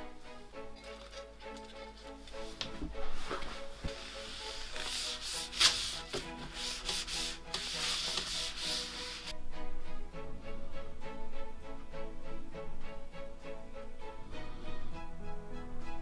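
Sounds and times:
cloth wiping wooden tabletop: 2.0s - 9.3s.

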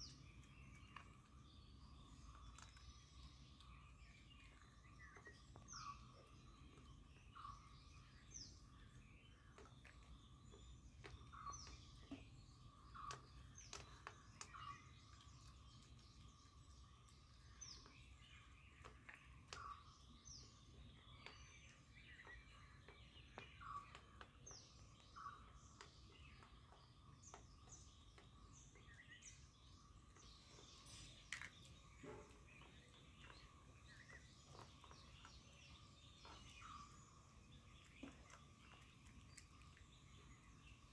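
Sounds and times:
small birds chirping: 0.0s - 40.9s
puppy crunching dry kibble: 13.0s - 20.1s.

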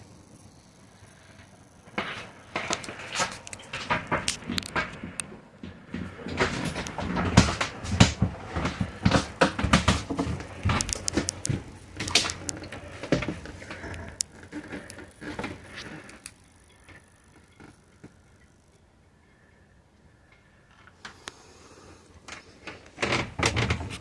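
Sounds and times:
footsteps knocking in boat cabin: 5.0s - 11.8s.

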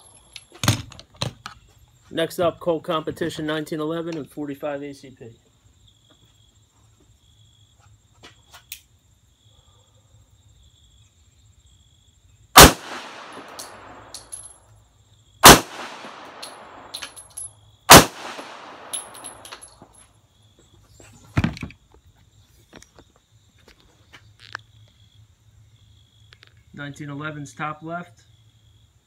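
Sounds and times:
pistol shots with echo: 12.6s - 14.4s, 15.4s - 17.2s, 17.9s - 19.7s
gun handling clicks: 12.6s - 14.6s, 15.4s - 19.8s.

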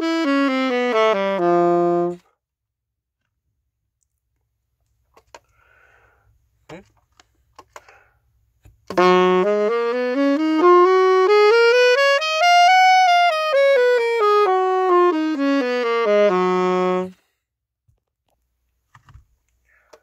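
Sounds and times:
saxophone playing a scale: 0.0s - 2.3s, 8.9s - 17.2s.

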